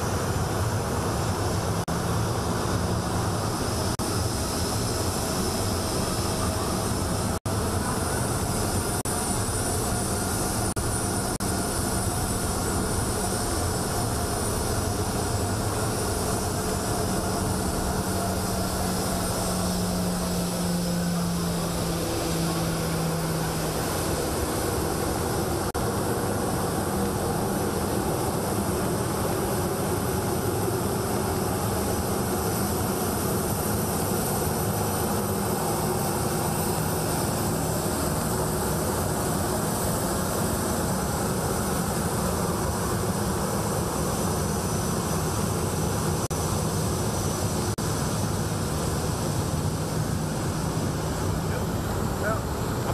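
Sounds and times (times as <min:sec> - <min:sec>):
jet engine whine: 0:00.0 - 0:52.9.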